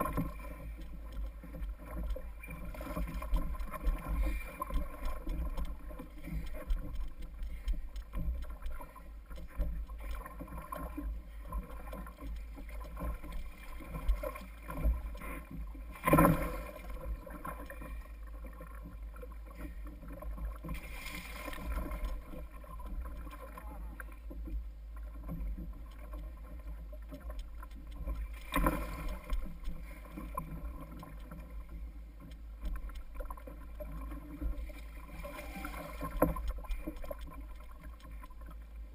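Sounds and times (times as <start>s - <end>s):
water lapping against kayak hull: 0.0s - 38.9s
splashy rushes of water: 20.7s - 22.3s.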